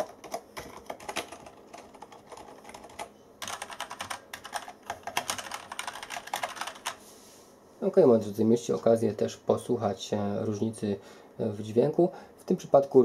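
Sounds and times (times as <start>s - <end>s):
mechanical keyboard clacking: 0.0s - 7.0s
soft muted keyboard typing: 0.0s - 7.0s.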